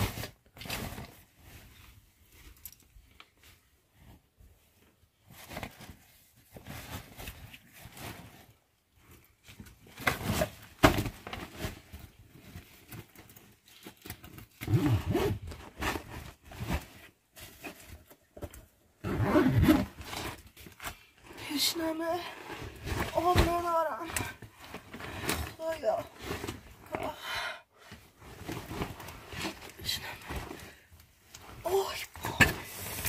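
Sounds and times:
zipper: 14.5 - 16.8, 19.0 - 20.4.

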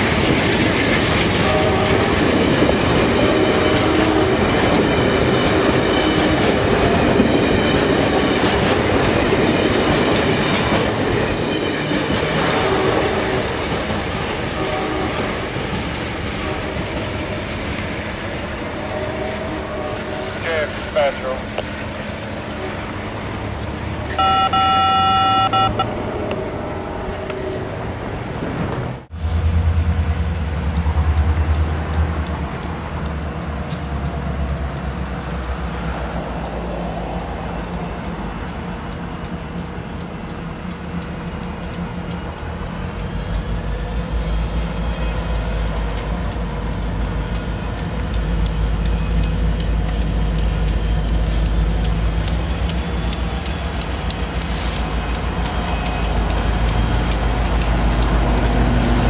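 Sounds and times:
freight train locomotives rumbling: 0.0 - 59.0.

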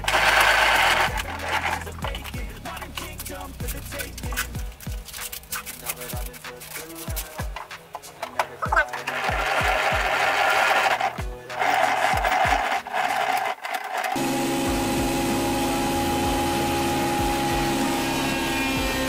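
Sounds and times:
machine hum with steady tones: 0.0 - 2.6, 14.2 - 19.0
thickness planer planing wood: 0.0 - 3.2, 6.5 - 19.0
music with steady beat: 0.0 - 10.4, 11.0 - 12.7.

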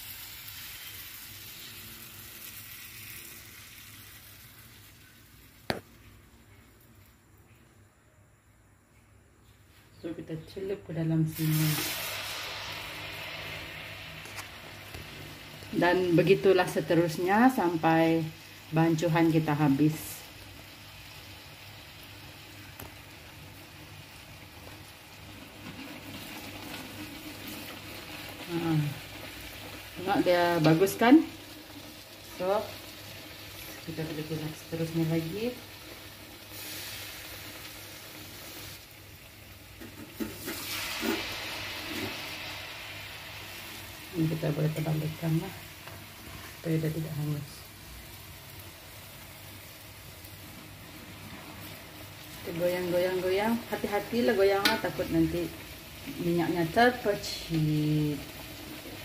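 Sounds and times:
fritters sizzling in hot oil: 0.0 - 7.2, 10.9 - 59.0.

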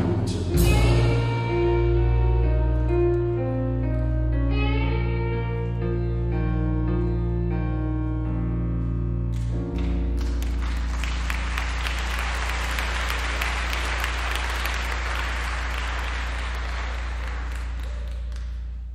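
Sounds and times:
audience applause: 9.8 - 18.7.

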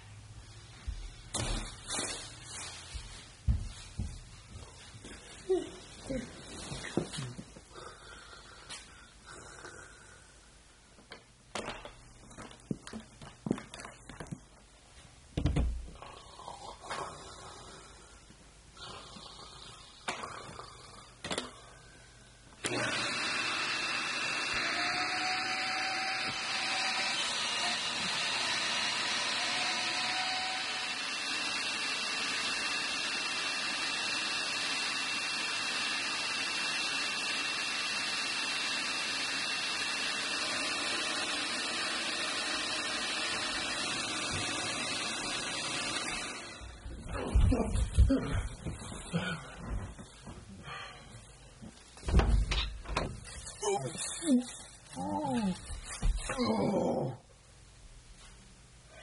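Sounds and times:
vacuum cleaner running: 22.6 - 50.1.

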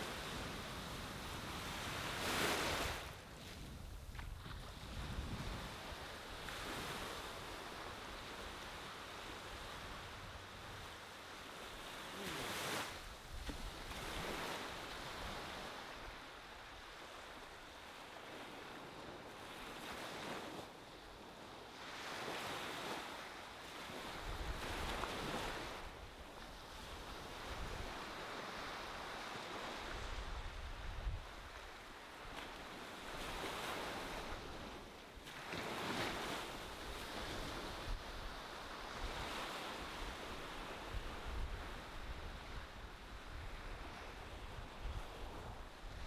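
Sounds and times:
wind rumble on microphone: 0.0 - 10.9, 29.6 - 32.5, 35.8 - 46.0
ocean waves breaking: 4.7 - 17.5.

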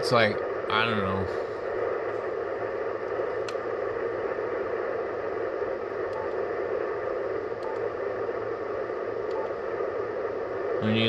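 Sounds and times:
radio static hiss: 0.0 - 11.0.

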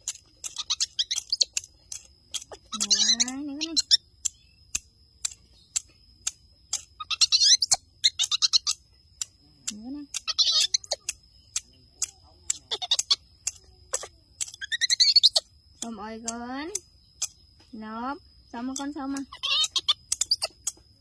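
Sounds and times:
steady ticking: 0.0 - 21.0
baby monkey squealing: 0.4 - 1.6, 2.3 - 4.0, 6.9 - 8.9, 10.2 - 11.1, 12.5 - 15.5, 19.2 - 20.6.

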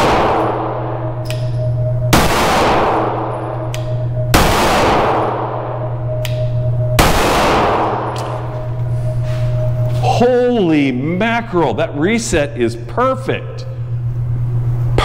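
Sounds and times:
pistol shots with reverberation: 0.0 - 3.4, 4.3 - 6.4, 7.0 - 8.4.

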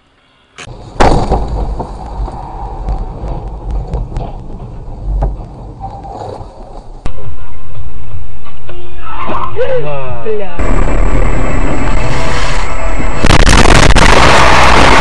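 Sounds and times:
tyre and rain noise: 0.7 - 7.1
deep rumble: 0.7 - 8.6, 10.6 - 15.0.

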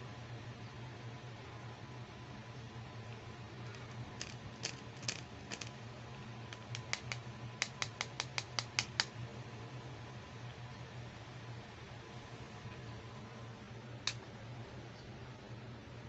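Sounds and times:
steady low hum: 0.0 - 16.0
plastic toy clicks: 3.7 - 5.7, 6.5 - 9.1.

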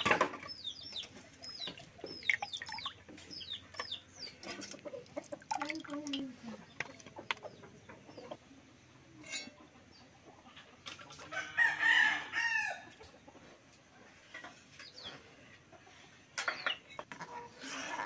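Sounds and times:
rooster crowing: 11.3 - 12.9.

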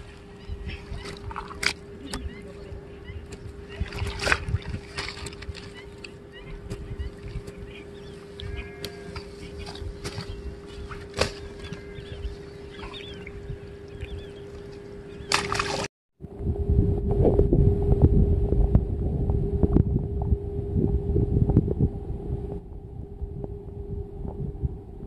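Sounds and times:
faint bird calls: 0.0 - 4.3, 5.4 - 15.8
steady hum: 0.0 - 25.0
wind buffeting microphone: 0.0 - 25.0.

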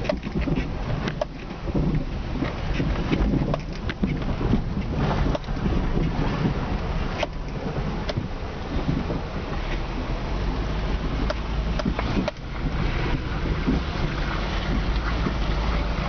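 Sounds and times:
car engine and tyres rumbling: 0.0 - 16.0.

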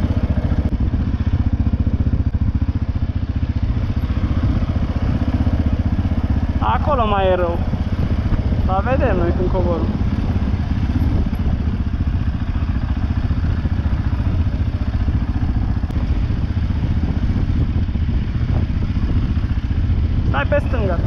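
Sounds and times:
atv engine running: 0.0 - 21.0.

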